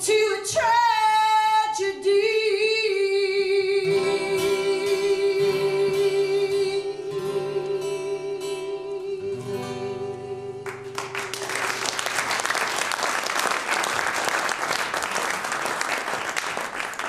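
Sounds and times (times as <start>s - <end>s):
acoustic guitar notes: 0.1s - 12.2s
audience applause: 10.7s - 17.0s.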